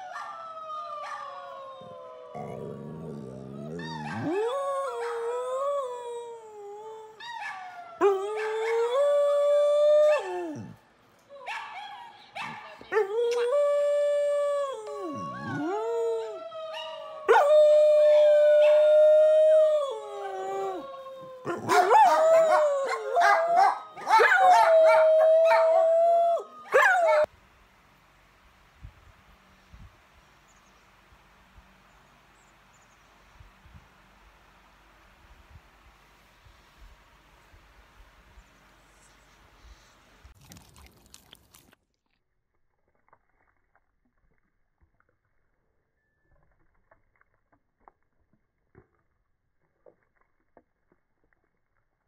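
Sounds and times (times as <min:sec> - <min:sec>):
dog howling: 0:00.0 - 0:10.8, 0:12.9 - 0:27.3.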